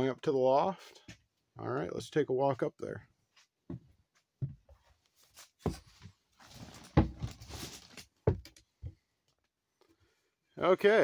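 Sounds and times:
footsteps on wooden stairs: 3.7s - 5.0s, 5.6s - 6.2s, 6.9s - 7.4s, 8.2s - 9.0s
rustling: 5.0s - 8.2s.

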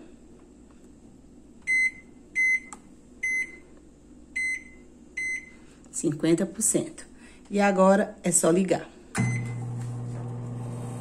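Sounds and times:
microwave keypad beeps: 1.7s - 3.6s, 4.4s - 5.6s, 9.2s - 9.6s.

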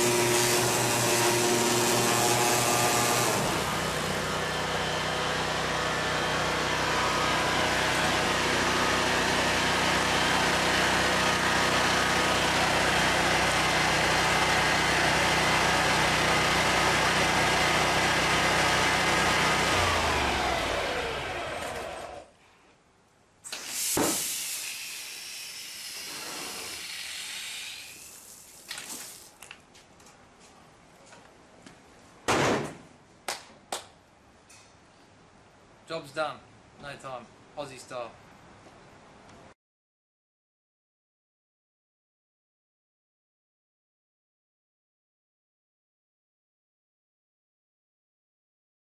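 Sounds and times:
water jet hissing: 23.5s - 29.4s.

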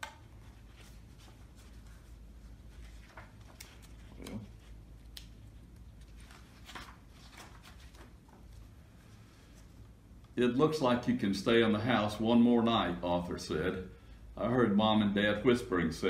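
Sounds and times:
book pages turning: 0.0s - 8.7s
low room hum: 0.0s - 16.0s.

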